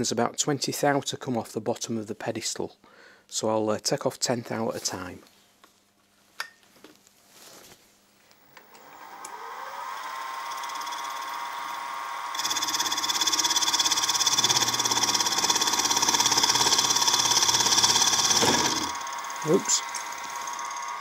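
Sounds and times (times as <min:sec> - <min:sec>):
end mill cutting metal: 0:08.4 - 0:21.0
milling machine spindle whine: 0:08.4 - 0:21.0.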